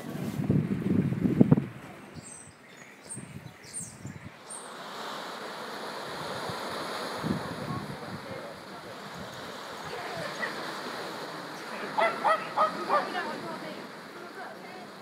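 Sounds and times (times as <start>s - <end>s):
surf washing onto beach: 4.4s - 15.0s.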